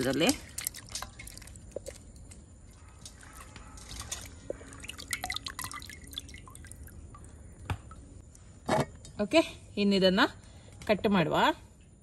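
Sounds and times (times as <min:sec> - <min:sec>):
water dripping into steel bowl: 0:00.0 - 0:08.1.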